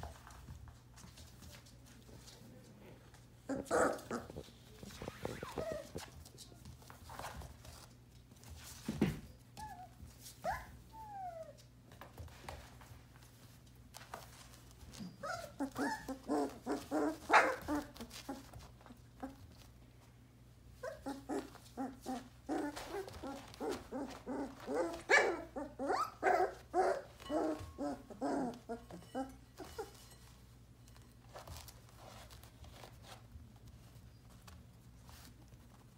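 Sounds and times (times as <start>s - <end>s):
puppies whining: 3.5s - 6.2s, 9.3s - 11.7s, 14.9s - 19.4s, 20.8s - 30.2s
puppies yipping and barking: 15.1s - 18.5s, 20.8s - 30.0s.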